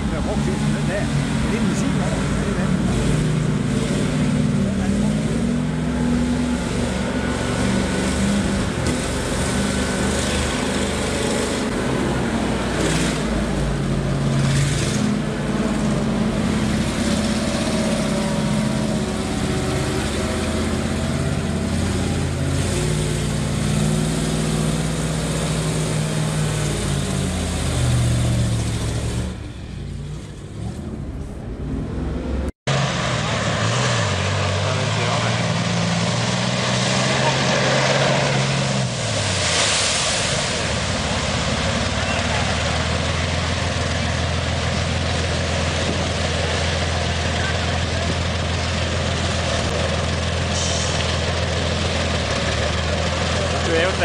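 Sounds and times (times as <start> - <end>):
heavy truck engine revving: 0.0 - 54.0.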